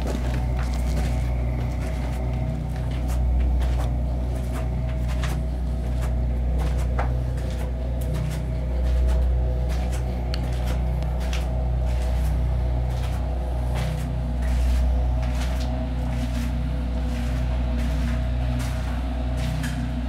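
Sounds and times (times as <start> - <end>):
footsteps on concrete stairs: 0.0 - 20.0
low droning hum: 0.0 - 20.0.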